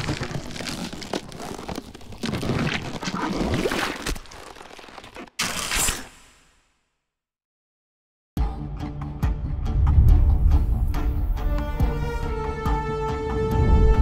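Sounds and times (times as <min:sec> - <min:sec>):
dense whooshing noise: 0:09.6 - 0:11.6.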